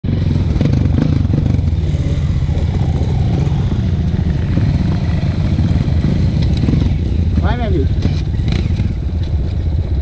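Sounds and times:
motorcycle engine at low revs: 0.0s - 10.0s.

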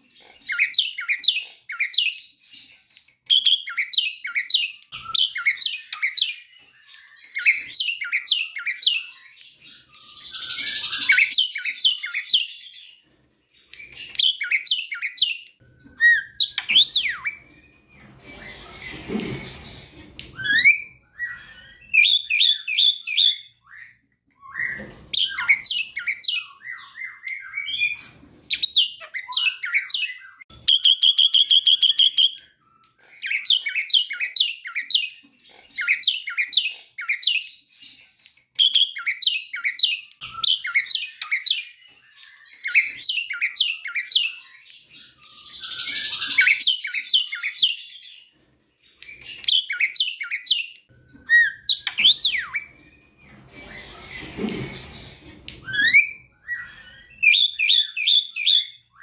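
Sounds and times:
bird singing whistled notes: 3.3s - 13.0s, 38.6s - 48.2s.

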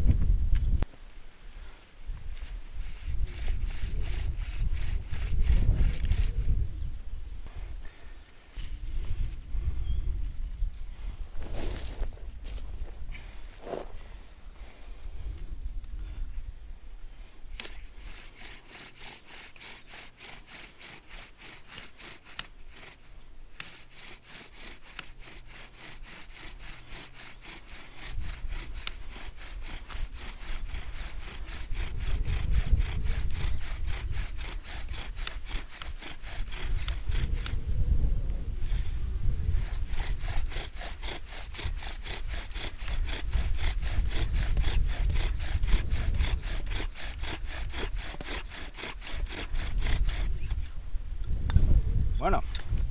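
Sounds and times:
bow drill spindle grinding wood: 2.2s - 6.8s, 17.3s - 50.8s.

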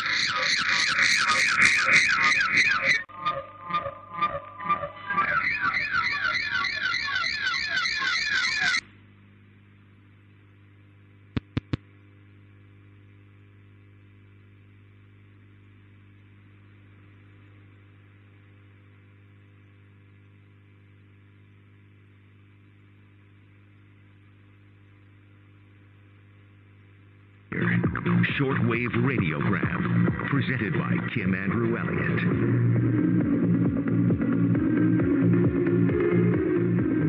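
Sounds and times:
radio receiver hiss: 0.0s - 3.0s, 9.7s - 32.6s
low steady hum: 8.8s - 37.0s
sharp clicks: 11.4s - 11.8s.

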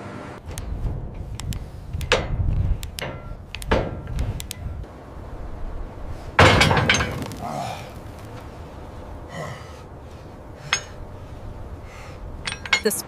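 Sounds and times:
low steady rumble: 0.2s - 13.0s
sharp click: 1.4s - 4.6s
wrenches clanking on steel bolts: 10.6s - 11.0s, 12.4s - 13.0s.

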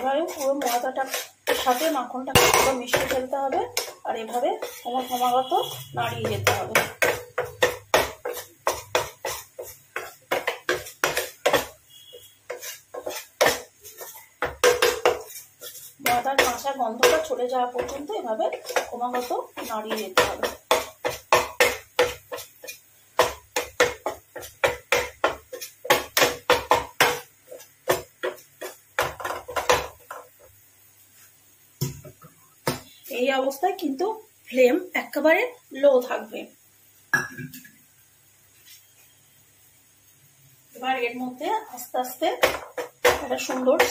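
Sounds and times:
spatula scraping a pan: 0.0s - 30.4s, 41.6s - 43.9s.

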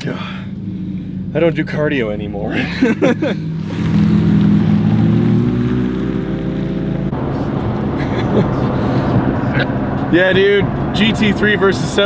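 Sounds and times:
sports car engine revving: 0.0s - 12.0s.

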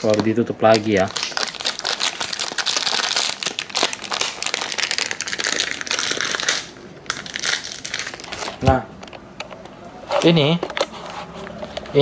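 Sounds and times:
food packaging crinkling: 0.0s - 8.6s.

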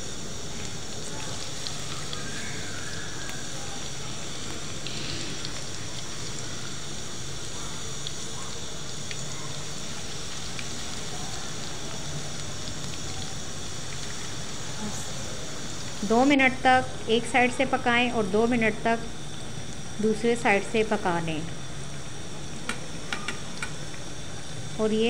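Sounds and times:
food deep-frying in hot oil: 0.0s - 25.0s
oil crackles: 0.1s - 16.1s.

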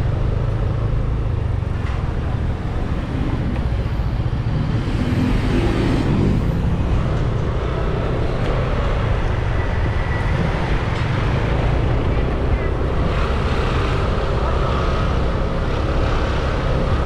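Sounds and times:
road noise rumble: 0.0s - 17.0s.

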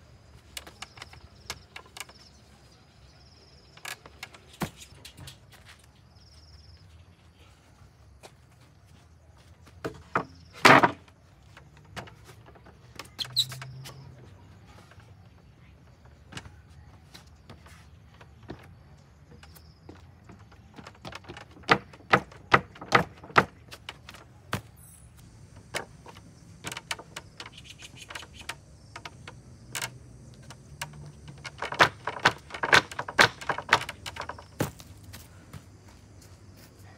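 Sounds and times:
sneakers stepping on plywood: 15.8s - 24.9s, 31.2s - 36.9s
wooden sawhorse knocking: 19.3s - 24.3s, 25.5s - 34.8s
knocks on wooden board: 21.3s - 23.6s
plywood sheet clattering: 31.0s - 34.8s.

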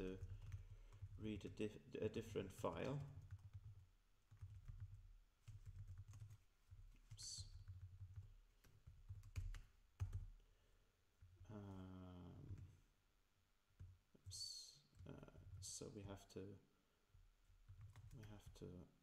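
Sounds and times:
computer keyboard typing: 0.0s - 1.5s, 2.5s - 10.3s, 17.6s - 18.5s.

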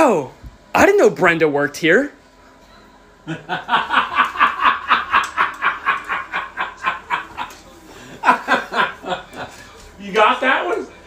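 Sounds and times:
hearty laughter: 3.2s - 9.8s.

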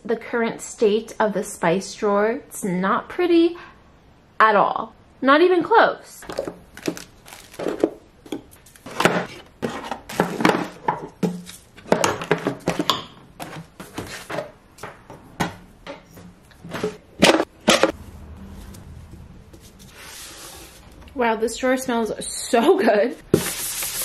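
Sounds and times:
jars clattering against wood: 6.3s - 14.6s.

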